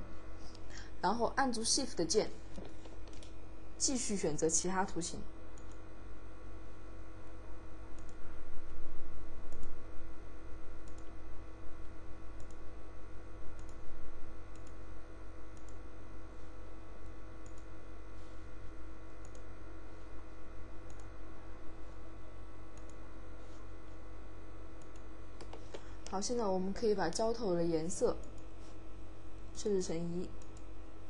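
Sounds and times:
electrical hum: 0:00.0 - 0:31.0
computer mouse clicking: 0:05.6 - 0:05.8, 0:07.9 - 0:08.2, 0:09.5 - 0:09.8, 0:10.8 - 0:11.2, 0:12.4 - 0:12.6, 0:13.6 - 0:13.8, 0:14.5 - 0:14.8, 0:15.5 - 0:15.8, 0:17.4 - 0:17.7, 0:19.2 - 0:19.5, 0:20.8 - 0:21.1, 0:22.8 - 0:23.0, 0:24.8 - 0:26.4, 0:28.2 - 0:28.5, 0:30.4 - 0:30.7.

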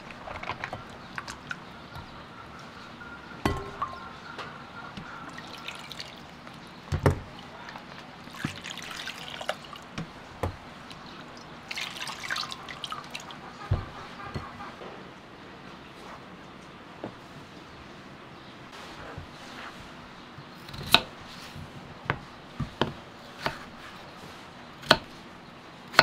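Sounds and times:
water splashing in a glass bowl: 0:05.3 - 0:09.9, 0:11.4 - 0:13.4.

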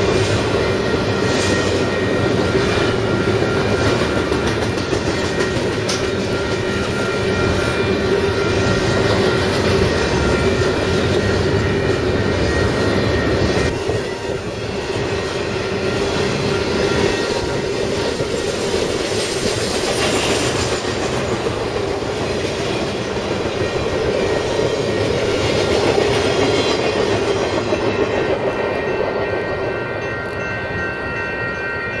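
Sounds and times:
freight train rumbling past: 0:00.0 - 0:32.0.

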